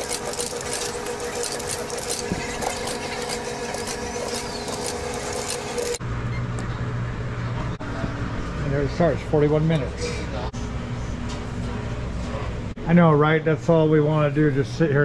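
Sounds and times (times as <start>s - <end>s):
washing machine hum: 0.0s - 6.0s.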